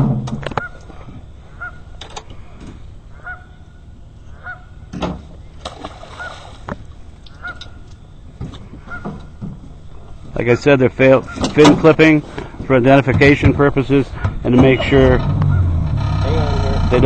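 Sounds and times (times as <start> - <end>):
geese honking: 0.5 - 1.9, 3.1 - 4.8, 6.0 - 6.6, 7.3 - 7.9, 8.8 - 9.3, 10.4 - 11.6, 14.1 - 16.9
fish splashing into water: 5.6 - 6.9.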